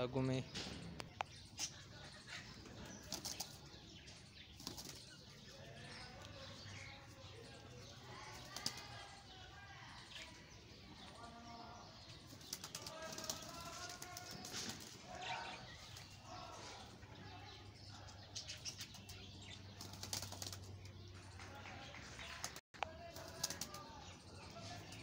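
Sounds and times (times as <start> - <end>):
pigeons flapping wings: 2.9 - 3.6, 4.6 - 5.1, 8.2 - 9.1, 12.2 - 15.0, 18.9 - 20.7, 22.2 - 24.0.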